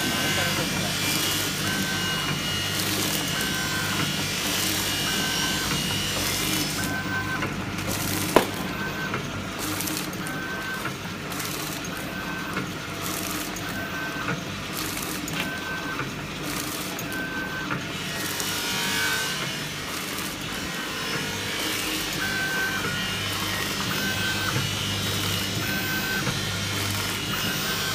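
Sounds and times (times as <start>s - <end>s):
machine motor hum: 0.0s - 27.9s
faint machine knocks: 8.3s - 9.3s.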